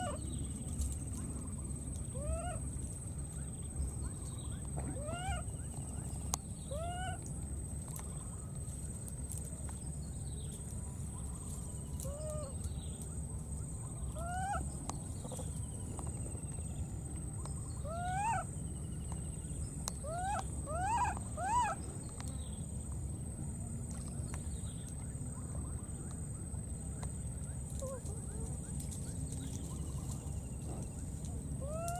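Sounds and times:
baby monkey coo calls: 0.0 - 0.3, 2.1 - 2.8, 4.9 - 5.8, 6.6 - 7.3, 11.9 - 12.7, 13.9 - 15.6, 17.6 - 18.6, 20.0 - 21.8, 27.7 - 28.8, 31.4 - 31.9.

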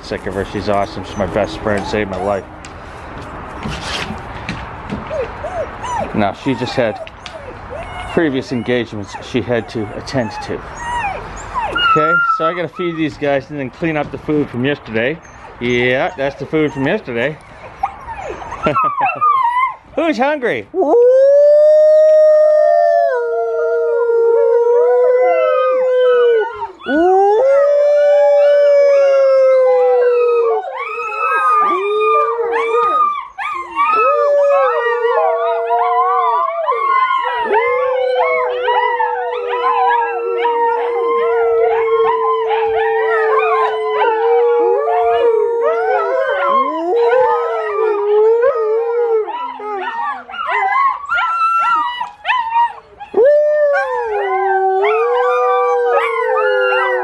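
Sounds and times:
dogs howling in chorus: 0.1 - 2.6, 5.0 - 13.3, 15.6 - 19.8, 20.8 - 57.0
dog howling: 0.4 - 2.5, 5.1 - 13.1, 20.8 - 57.0.

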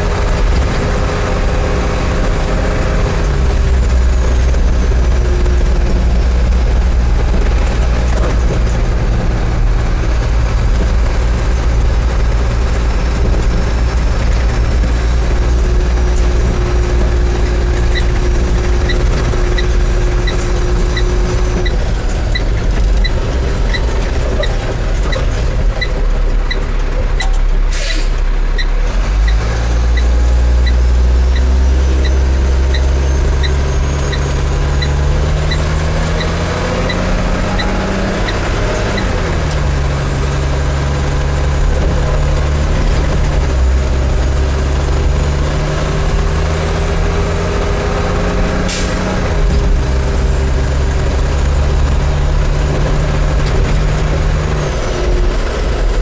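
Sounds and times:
diesel truck engine running: 0.0 - 56.0
short air hiss: 27.7 - 28.2.

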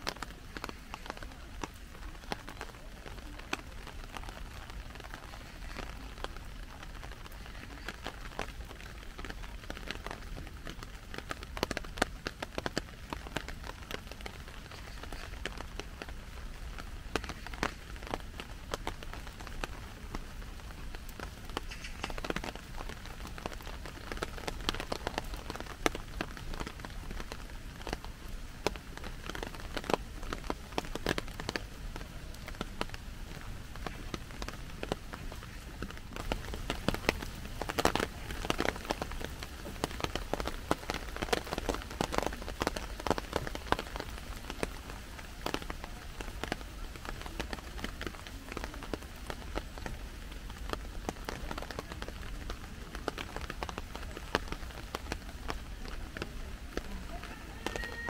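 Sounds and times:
rain hissing: 0.0 - 58.0
raindrops tapping on plastic umbrella: 0.0 - 58.0.

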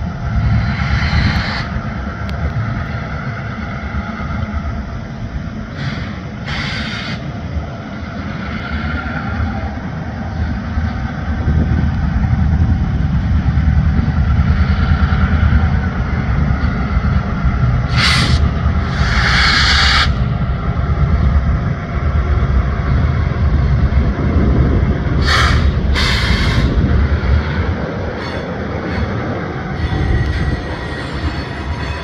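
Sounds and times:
locomotive engine rumble: 0.0 - 32.0
sharp hissing bursts: 0.4 - 1.9, 5.7 - 7.4, 17.8 - 20.4, 25.2 - 27.5.

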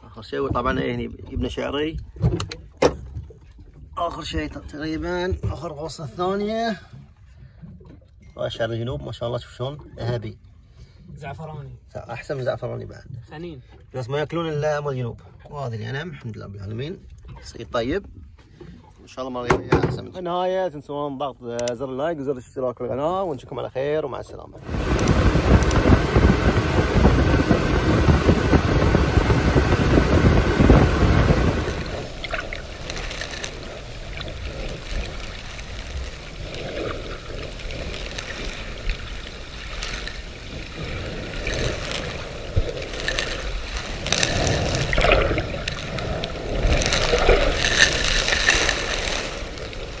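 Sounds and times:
water sloshing and splashing: 0.6 - 4.5, 24.6 - 50.0
motorboat engine running: 24.6 - 50.0
wind noise on microphone: 24.6 - 50.0.

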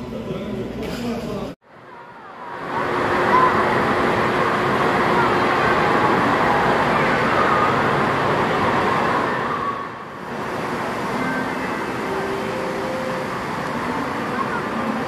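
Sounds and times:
hubbub of many people: 0.0 - 15.0
waves breaking in wave pool: 1.7 - 15.0
rushing water: 2.0 - 15.0.

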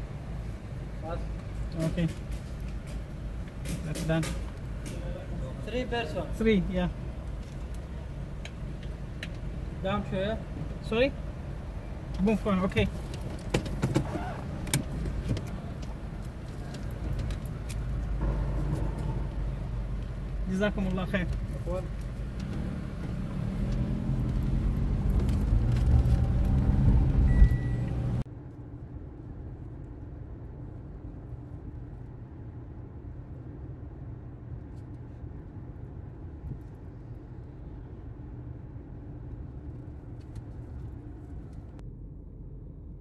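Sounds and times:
car cruising hum: 0.0 - 43.0
car engine and road noise: 0.0 - 43.0
short beep: 27.3 - 27.9.

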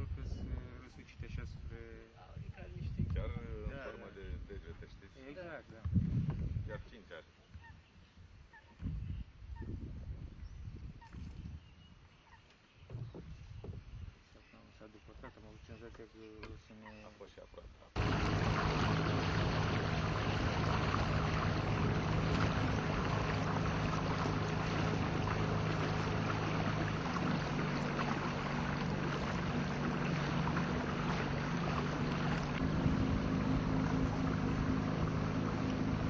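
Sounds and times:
water and wind rushing: 0.0 - 4.5, 18.0 - 36.0
motorboat engine humming: 18.0 - 36.0.

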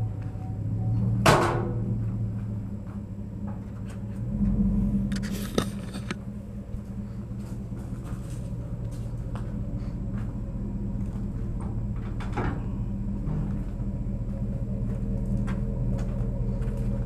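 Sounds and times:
engine idling: 0.0 - 17.0
clattering: 5.1 - 6.3.

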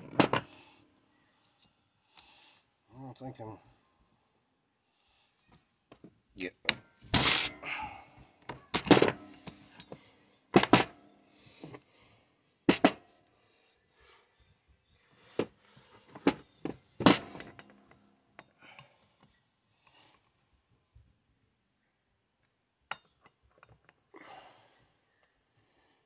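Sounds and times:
metal tools clinking on metal: 7.1 - 7.7, 16.8 - 18.5.

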